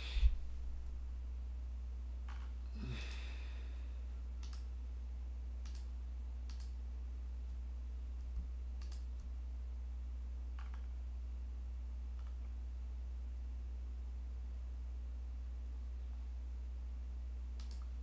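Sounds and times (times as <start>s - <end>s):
low electrical hum: 0.0s - 18.0s
computer mouse clicks: 4.4s - 4.7s, 5.6s - 5.9s, 6.5s - 6.8s, 8.3s - 9.3s, 17.6s - 17.9s.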